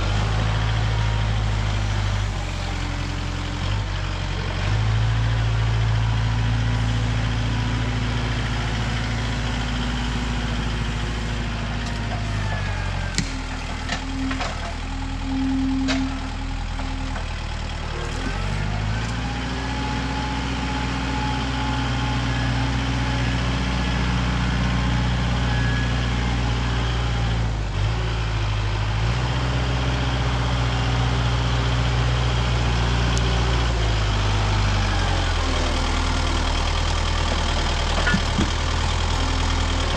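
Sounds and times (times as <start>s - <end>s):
heavy engine running: 0.0s - 39.9s.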